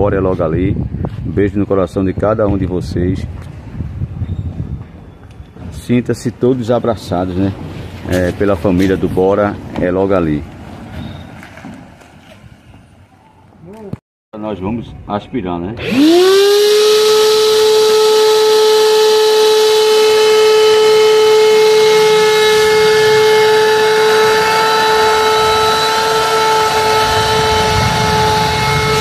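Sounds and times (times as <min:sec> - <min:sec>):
vacuum cleaner running: 0:15.8 - 0:29.0.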